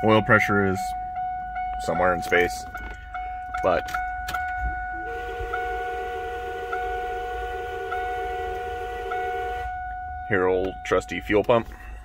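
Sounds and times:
electric fuel pump humming: 0:05.0 - 0:09.8.

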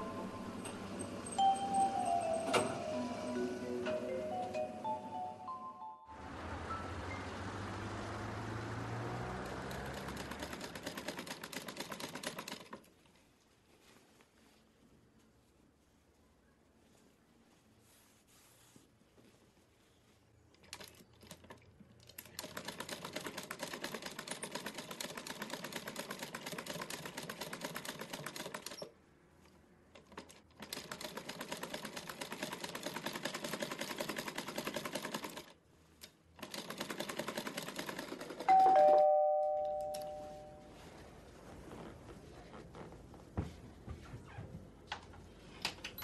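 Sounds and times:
two-note doorbell chime: 0:00.0 - 0:07.4, 0:38.5 - 0:40.8
sewing machine stitching: 0:09.4 - 0:12.8, 0:36.4 - 0:38.6.

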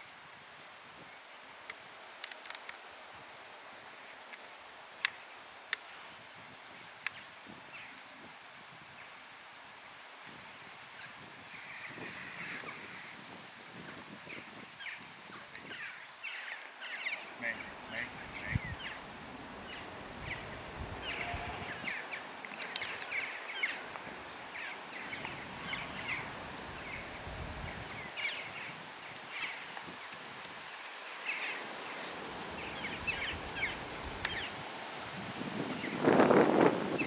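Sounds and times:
wind rumble on microphone: 0:10.2 - 0:16.0, 0:17.4 - 0:22.3, 0:23.8 - 0:30.6, 0:32.2 - 0:37.0
small birds chirping: 0:14.2 - 0:30.3, 0:31.2 - 0:34.6.

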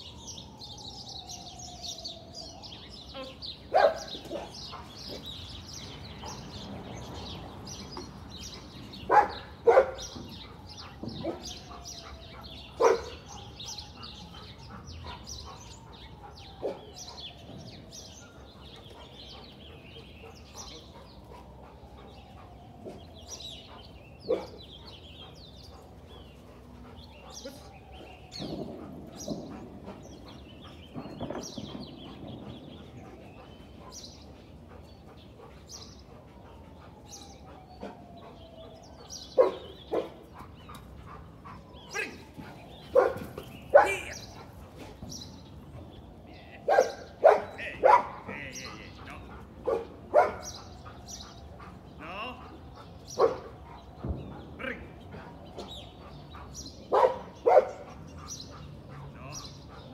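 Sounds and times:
dog barking: 0:03.7 - 0:05.2, 0:09.1 - 0:10.1, 0:12.8 - 0:13.5, 0:24.3 - 0:24.6, 0:39.4 - 0:40.2, 0:42.9 - 0:44.2, 0:46.7 - 0:48.4, 0:49.6 - 0:50.6, 0:53.1 - 0:53.5, 0:56.4 - 0:59.2.

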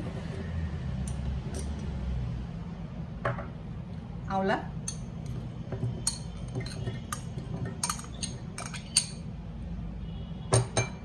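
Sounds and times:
metal spoon clinking on glass: 0:04.8 - 0:05.4, 0:06.0 - 0:09.3.

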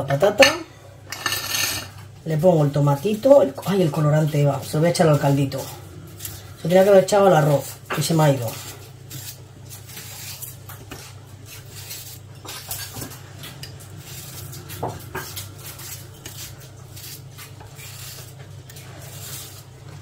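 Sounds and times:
dishes and utensils clinking: 0:00.4 - 0:02.0.

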